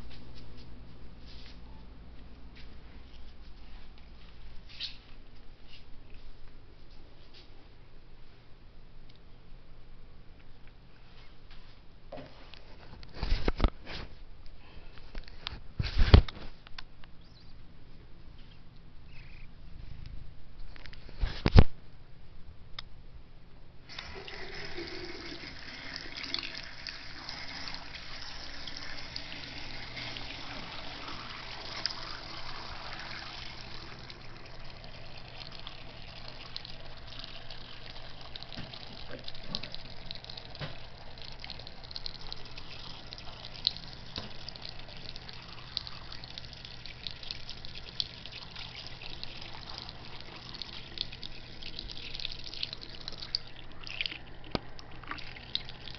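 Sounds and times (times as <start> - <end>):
faucet running into sink: 23.9 - 55.9
water splashing: 29.2 - 55.9.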